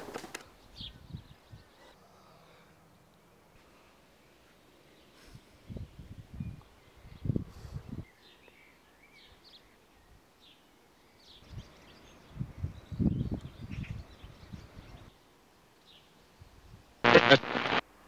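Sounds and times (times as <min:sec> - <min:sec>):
faint birds chirping: 0:00.4 - 0:17.8
wind gusts on microphone: 0:05.6 - 0:08.0, 0:11.4 - 0:15.1.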